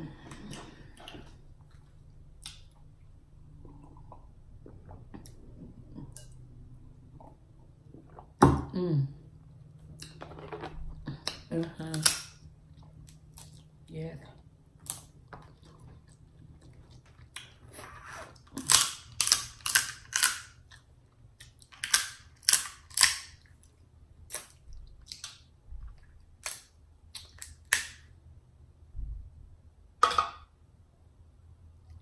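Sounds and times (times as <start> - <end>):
crab shells cracking: 18.6 - 20.8, 21.4 - 23.4.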